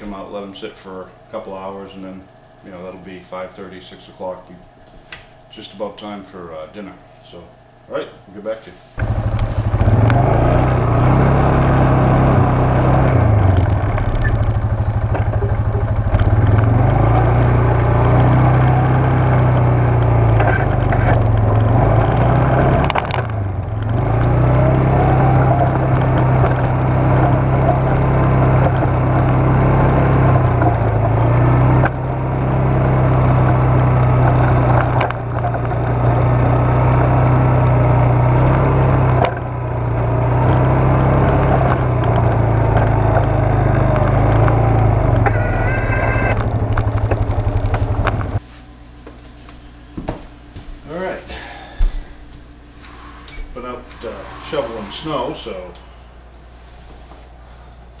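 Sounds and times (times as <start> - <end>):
plow vehicle engine droning: 9.0 - 48.4.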